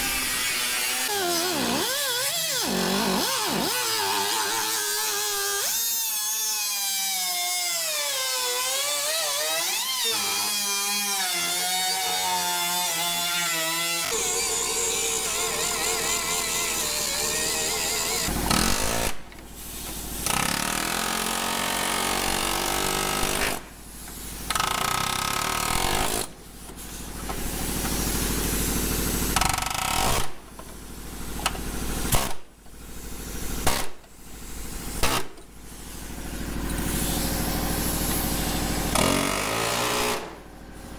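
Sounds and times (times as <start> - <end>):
air cutoff wheel cutting metal: 13.5 - 20.3.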